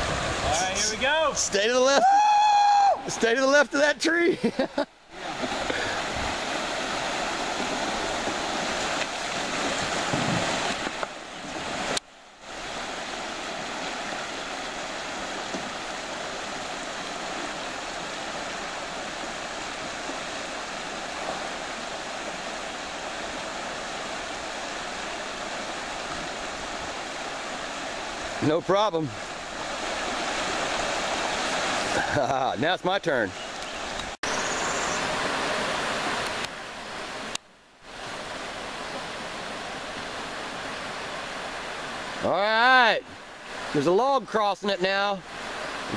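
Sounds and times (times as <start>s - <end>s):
river water rushing over rapids: 0.0s - 4.3s, 4.9s - 45.9s.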